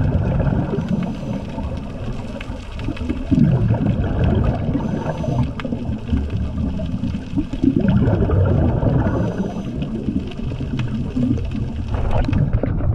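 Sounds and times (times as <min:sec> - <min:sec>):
muffled rumble of moving water: 0:00.0 - 0:12.9
faint clicks: 0:04.7 - 0:07.6.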